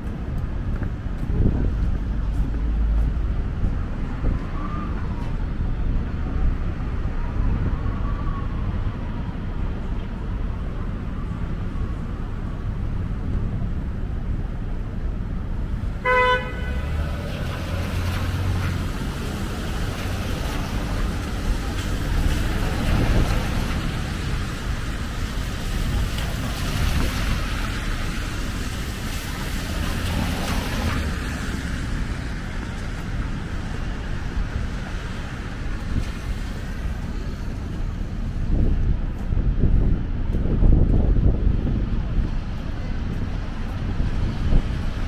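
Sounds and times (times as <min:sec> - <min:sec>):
street traffic noise: 0:00.0 - 0:45.0
vehicle horn toot: 0:16.0 - 0:17.0
vehicle passing: 0:16.1 - 0:35.4.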